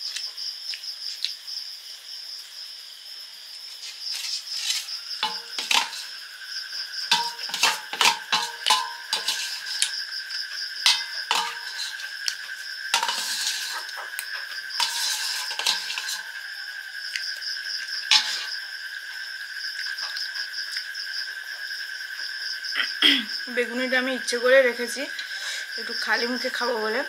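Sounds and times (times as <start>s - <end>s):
spoon scraping metal plate: 4.1s - 6.2s, 7.1s - 10.0s, 10.8s - 14.0s, 14.8s - 16.4s, 18.1s - 18.5s.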